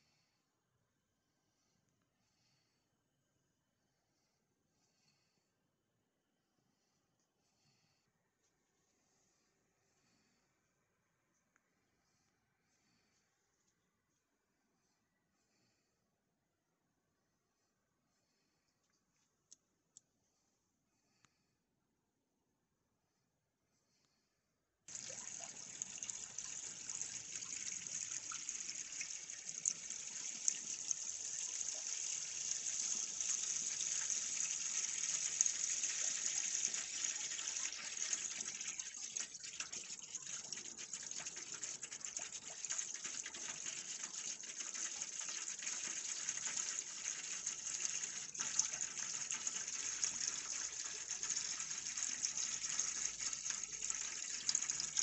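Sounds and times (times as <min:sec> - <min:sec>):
tap water splashing into sink: 0:24.9 - 0:55.0.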